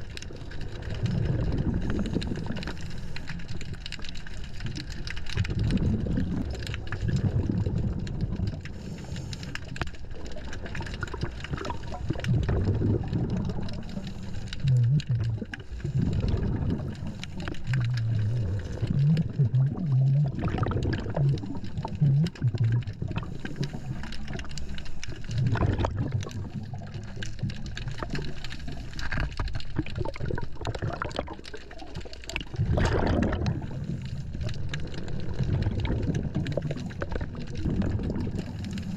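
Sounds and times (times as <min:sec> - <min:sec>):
bubbles gurgling underwater: 0:00.0 - 0:38.9
steady low underwater rumble: 0:00.0 - 0:38.9
diver breathing through regulator: 0:01.8 - 0:03.7, 0:08.7 - 0:10.0, 0:13.5 - 0:27.4, 0:38.2 - 0:38.9.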